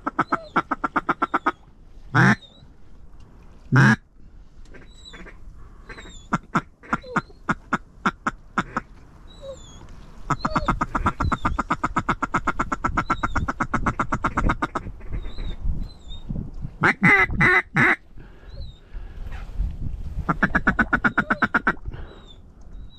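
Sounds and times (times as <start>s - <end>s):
duck call quacks: 2.2s - 2.4s, 3.7s - 4.0s, 16.8s - 18.0s, 20.3s - 21.8s.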